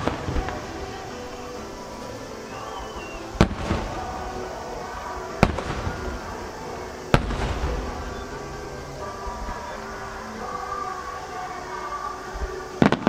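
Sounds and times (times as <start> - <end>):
firework crackling: 0.0 - 13.0
firework shells booming: 3.0 - 4.4, 5.0 - 9.8.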